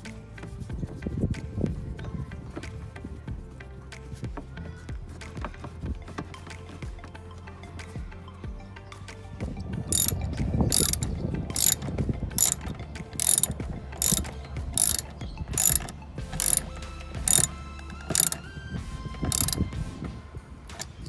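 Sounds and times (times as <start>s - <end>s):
socket ratchet clicking: 10.0s - 11.8s, 12.4s - 16.7s, 17.3s - 18.4s, 19.3s - 19.6s, 20.7s - 21.0s.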